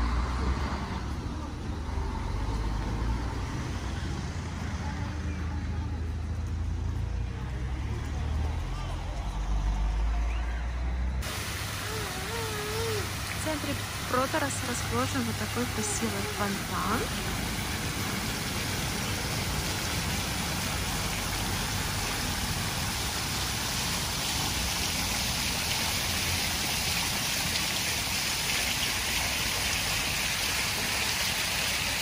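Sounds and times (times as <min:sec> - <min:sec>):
fountain water splashing: 0:11.2 - 0:32.0.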